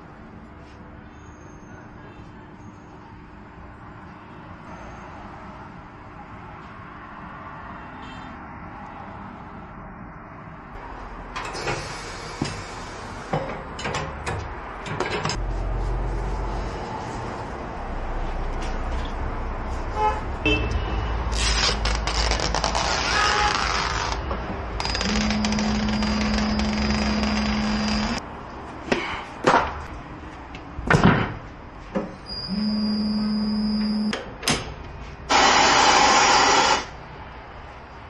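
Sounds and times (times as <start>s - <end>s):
turntable motor humming: 24.8s - 28.2s.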